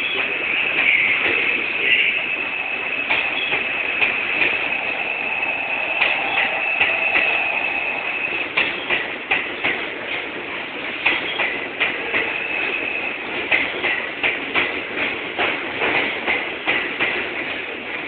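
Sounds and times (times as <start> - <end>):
high whine: 0.0 - 9.5, 11.6 - 13.7
train rumble: 0.0 - 18.0
train wheels clicking over rail joints: 0.0 - 18.0.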